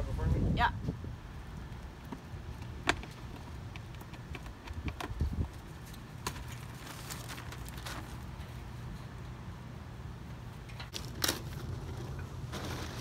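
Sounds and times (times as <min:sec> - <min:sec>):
clicks ticks and scraping: 0:01.7 - 0:09.0.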